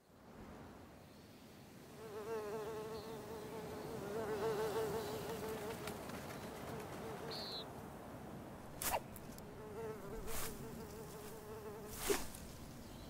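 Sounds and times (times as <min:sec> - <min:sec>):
soft outdoor ambience: 0:00.0 - 0:13.0
flying insect buzzing: 0:02.0 - 0:06.0, 0:08.7 - 0:12.8.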